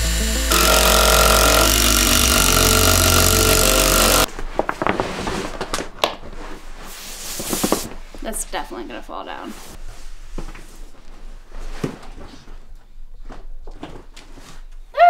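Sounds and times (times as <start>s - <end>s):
impact driver driving a screw: 0.2s - 4.3s.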